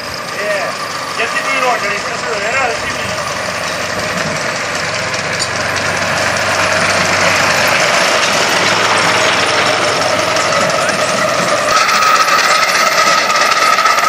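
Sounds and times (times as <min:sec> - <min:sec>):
steam engine exhaust beats: 0:00.0 - 0:14.0
steam hiss: 0:11.7 - 0:14.0.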